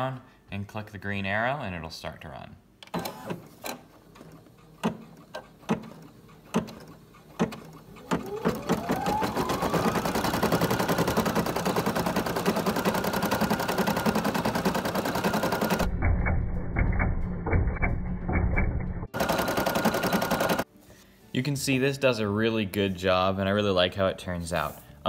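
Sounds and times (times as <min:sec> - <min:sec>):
embroidery machine stitching: 0:02.9 - 0:15.9, 0:19.1 - 0:20.7.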